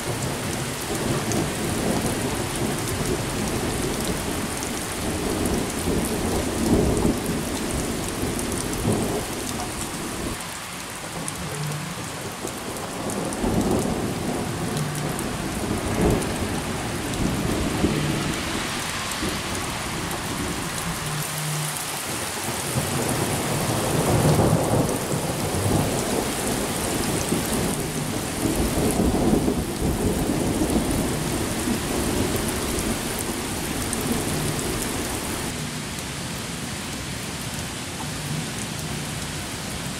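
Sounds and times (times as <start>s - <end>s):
steady rain: 0.0s - 39.9s
thunder rumbling: 12.5s - 21.1s, 22.6s - 35.5s.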